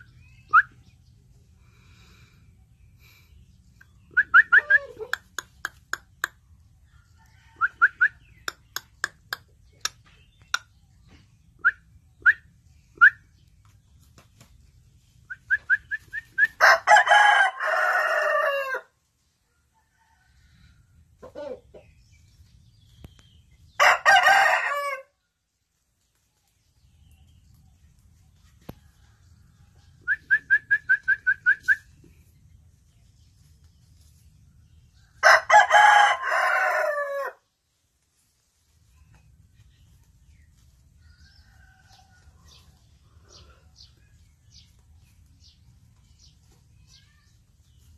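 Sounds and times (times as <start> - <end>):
rooster clucking: 4.1 - 6.4, 21.2 - 22.0
rooster crowing: 16.5 - 18.9, 23.8 - 25.1, 35.1 - 37.4.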